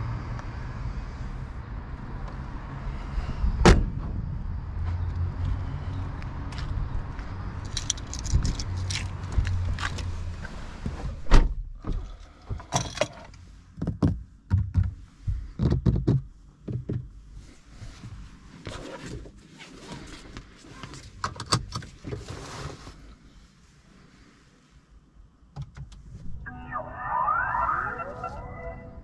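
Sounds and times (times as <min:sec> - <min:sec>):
knocks and clunks in a car: 0:10.8 - 0:17.2.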